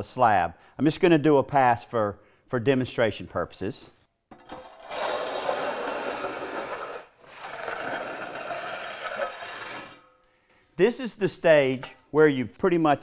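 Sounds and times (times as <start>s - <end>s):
float scraping over wet concrete: 4.6s - 10.0s.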